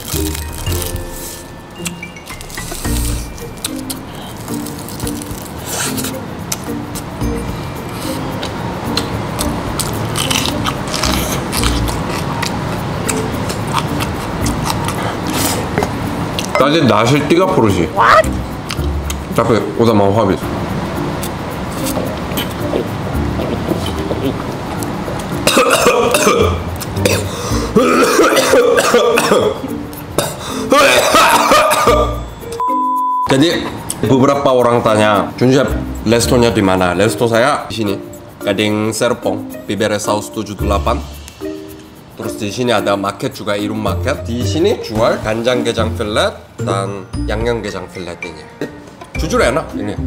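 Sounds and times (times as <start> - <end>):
person crunching and chewing: 0.0 - 6.6, 8.4 - 16.5
man clearing throat: 25.5 - 29.6, 30.2 - 32.2
man coughing: 25.5 - 29.6, 30.2 - 32.2.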